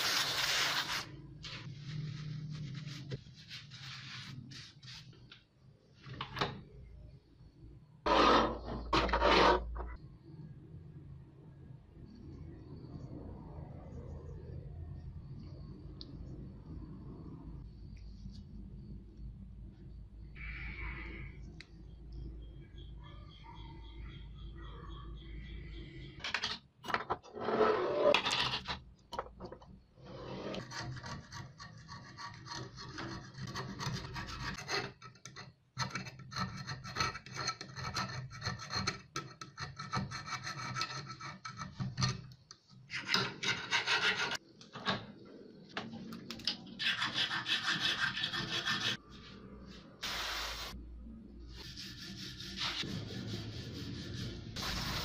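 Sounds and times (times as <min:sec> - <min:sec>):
file rasping on metal: 0:30.6 - 0:42.0, 0:43.0 - 0:44.4, 0:46.8 - 0:49.0.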